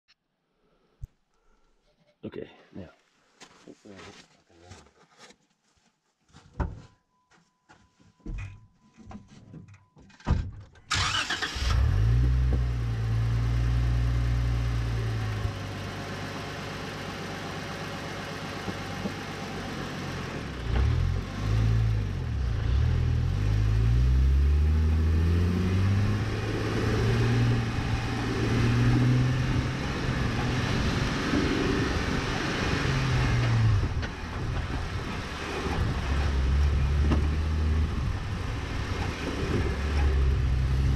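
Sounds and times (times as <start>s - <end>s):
car engine running: 14.7s - 21.2s, 24.3s - 40.9s.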